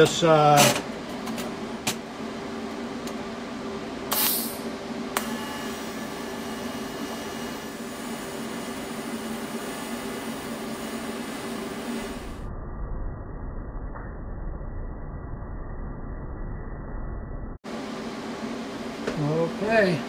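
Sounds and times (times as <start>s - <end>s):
welding machine hum: 1.3s - 12.4s
welding arc hissing: 4.1s - 12.4s.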